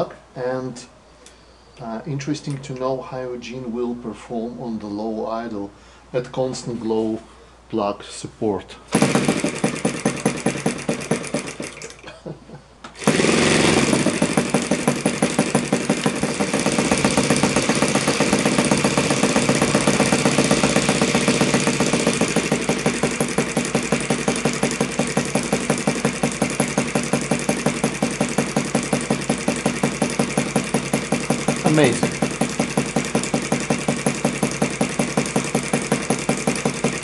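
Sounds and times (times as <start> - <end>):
model engine idling: 8.9 - 12.0, 13.0 - 37.0.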